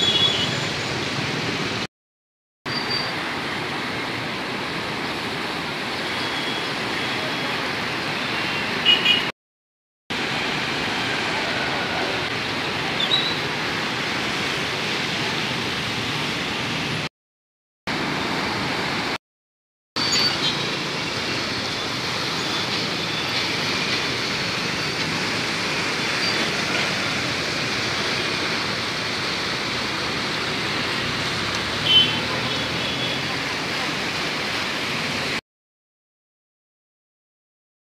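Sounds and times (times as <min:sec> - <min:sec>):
river rushing: 0:02.7 - 0:09.2, 0:10.2 - 0:17.1, 0:17.9 - 0:19.2, 0:20.0 - 0:35.4.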